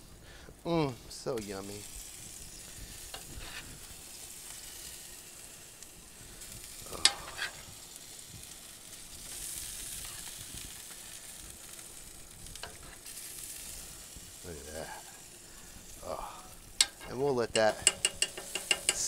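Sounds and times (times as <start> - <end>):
sauce and chicken sizzling: 0.0 - 19.0
metal spoon clinking on pan: 16.8 - 19.0.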